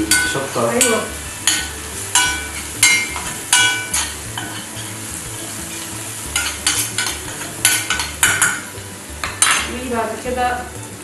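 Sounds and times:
spoon clinking against pan: 0.0s - 4.9s, 5.8s - 9.7s
chillies sizzling in oil: 0.0s - 11.0s.

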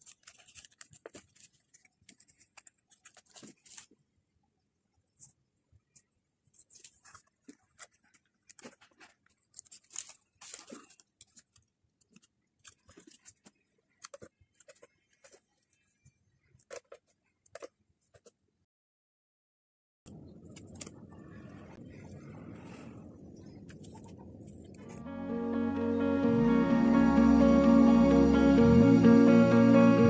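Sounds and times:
paper cards handled: 0.0s - 4.1s, 5.0s - 18.4s.

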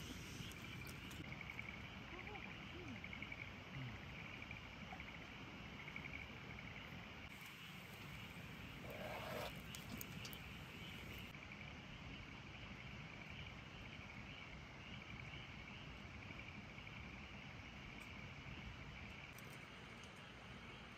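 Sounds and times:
frogs calling: 0.0s - 11.4s
rustle: 0.0s - 11.4s.

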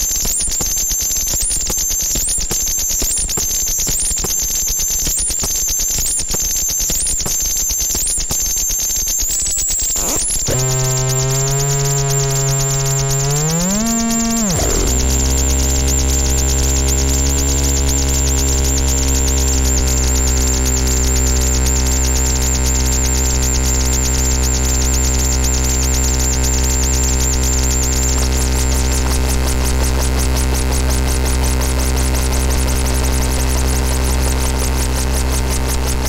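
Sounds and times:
electronic noise drone: 0.0s - 36.0s
fast buzzing flutter: 9.8s - 36.0s
synthesizer pitch glide dropping: 10.0s - 36.0s.

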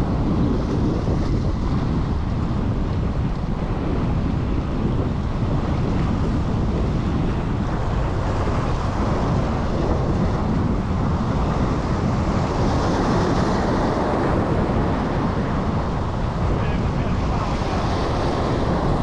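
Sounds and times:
wind rumbling on microphone: 0.0s - 19.0s
waves washing against rocks: 5.0s - 19.0s.

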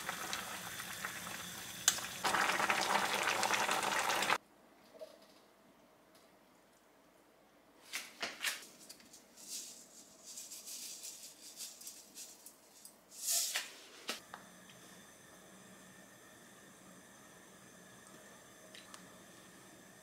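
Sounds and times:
seasoning shaking and sprinkling: 8.8s - 13.5s.

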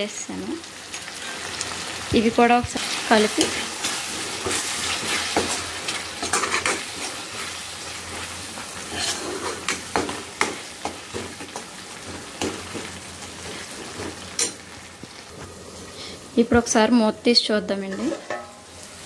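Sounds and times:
masala sizzling in a pan: 0.0s - 19.0s
spatula scraping a pan: 2.8s - 14.6s, 17.9s - 18.6s.

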